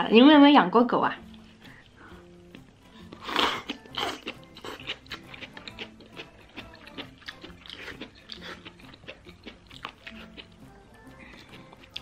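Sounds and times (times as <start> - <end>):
wet chewing clicks: 2.5 - 10.6
person slurping broth: 2.9 - 4.8.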